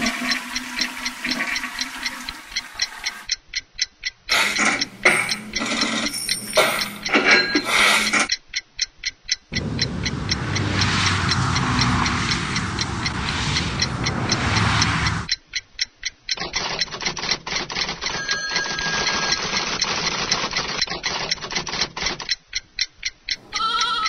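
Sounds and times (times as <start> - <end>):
rapid mechanical ticking: 0.0 - 3.4, 4.3 - 8.6, 9.3 - 23.6
low rumble: 9.5 - 15.3
animal bleating: 23.5 - 24.0.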